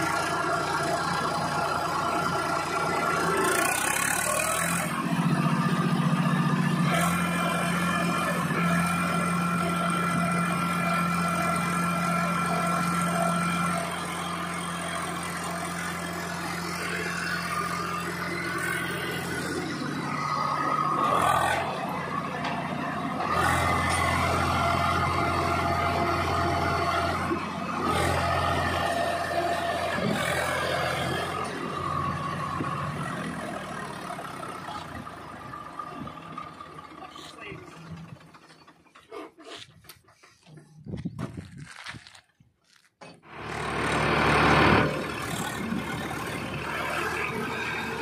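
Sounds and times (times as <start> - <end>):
tractor diesel engine under load: 0.0 - 48.0.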